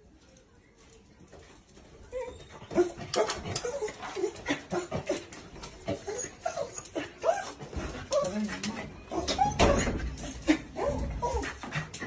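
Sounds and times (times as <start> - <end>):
dog whining and yipping: 5.9 - 8.5, 9.1 - 10.2, 10.8 - 11.6.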